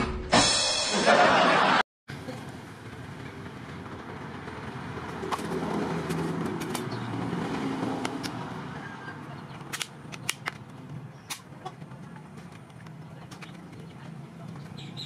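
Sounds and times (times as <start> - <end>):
plastic fan blade clicks: 9.6 - 11.5.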